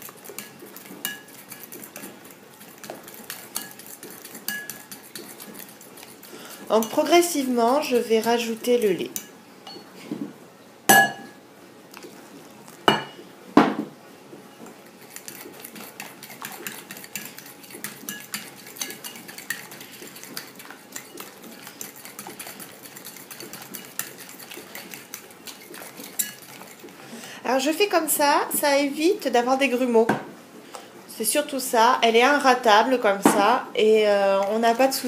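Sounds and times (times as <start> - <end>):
fork beating batter in bowl: 0.0 - 9.3, 14.7 - 27.0
fork clinking on ceramic bowl: 0.4 - 2.1, 3.3 - 5.3, 10.9 - 11.3, 16.4 - 21.2.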